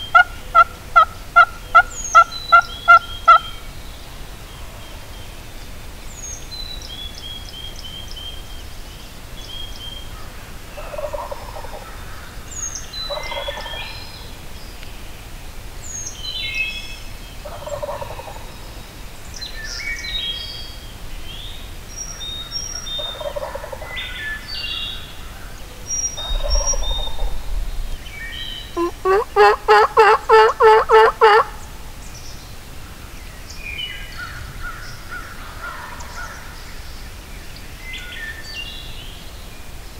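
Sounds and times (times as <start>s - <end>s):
songbirds chirping: 0.0s - 39.9s
turkey yelps: 0.1s - 3.4s, 28.8s - 31.7s
turkey gobbling: 0.1s - 3.6s, 10.8s - 11.8s, 13.1s - 13.8s, 17.5s - 18.4s, 23.1s - 23.9s, 26.2s - 27.4s, 28.8s - 31.7s.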